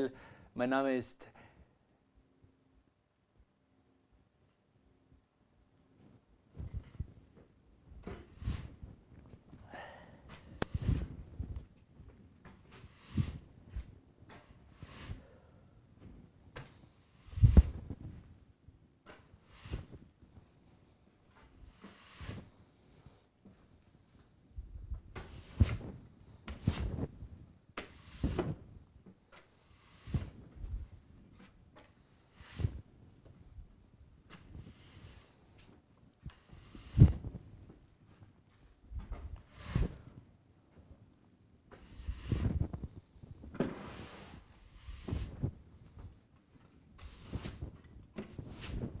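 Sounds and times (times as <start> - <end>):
broom sweeping floor: 8.1 - 8.9, 10.4 - 11.4, 12.5 - 15.5, 16.6 - 18.1, 19.1 - 23.7, 25.2 - 27.2, 27.8 - 28.6, 29.3 - 32.9, 34.2 - 37.4, 38.1 - 40.2, 41.7 - 42.9, 43.5 - 46.1, 47.0 - 49.0.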